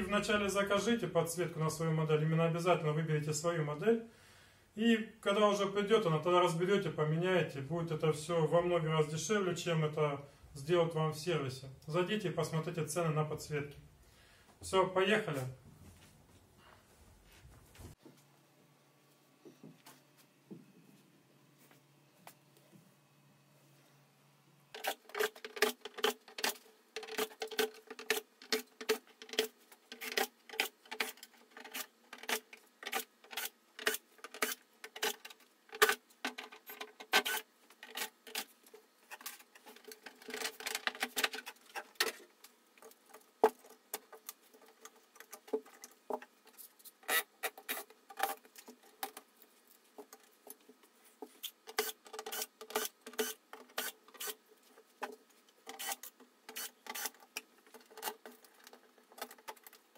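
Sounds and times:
screws and plastic clattering: 0:24.7 - 0:49.3, 0:51.4 - 0:59.9
cordless drill motor: 0:55.7 - 0:57.2.

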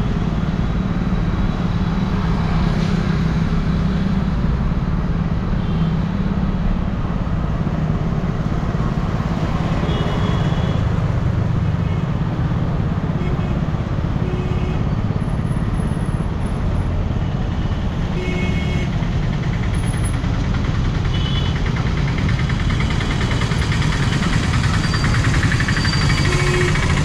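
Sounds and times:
traffic beeps: 0:24.2 - 0:27.0.

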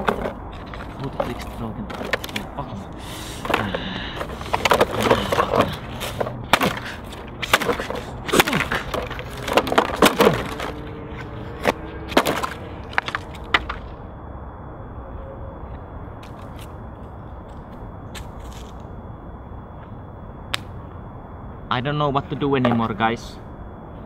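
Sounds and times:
plastic cracking: 0:00.0 - 0:02.6, 0:03.4 - 0:10.8, 0:11.6 - 0:13.9.

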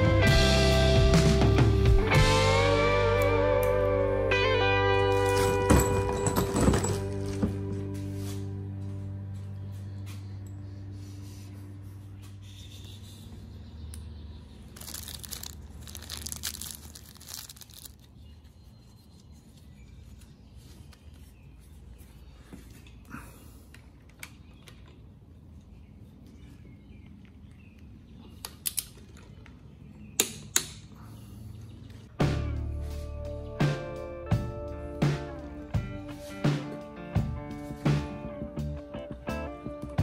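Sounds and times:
rustling: 0:14.7 - 0:18.4.

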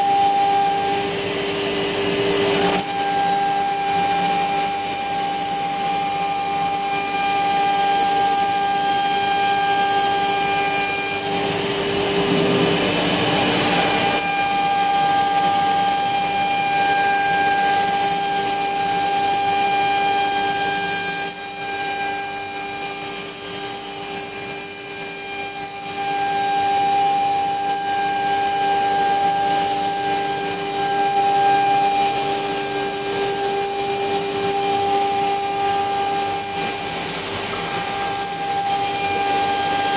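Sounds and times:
router spindle whine: 0:00.0 - 0:39.9
dust extraction rushing: 0:31.7 - 0:39.9.

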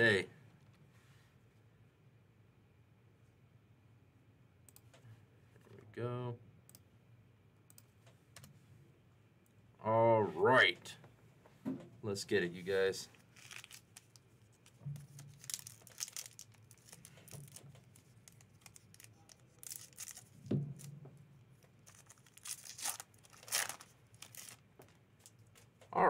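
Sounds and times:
foil wrapper tearing: 0:13.2 - 0:20.4, 0:21.8 - 0:24.6
foil wrapper crinkling: 0:13.2 - 0:20.9, 0:21.6 - 0:25.7.

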